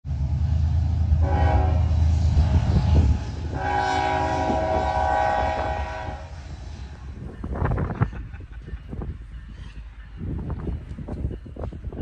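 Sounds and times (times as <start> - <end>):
train rumble: 0.0 - 12.0
locomotive air horn: 1.2 - 6.5.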